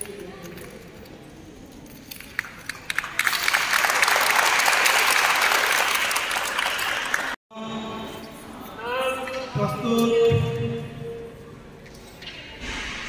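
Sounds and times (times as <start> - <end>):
people applauding: 2.3 - 7.4.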